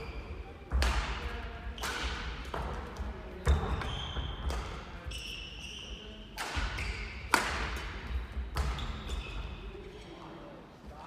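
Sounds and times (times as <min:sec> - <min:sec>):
court shoes squeaking: 0:00.0 - 0:10.4
shuttlecock hits: 0:06.4 - 0:09.2.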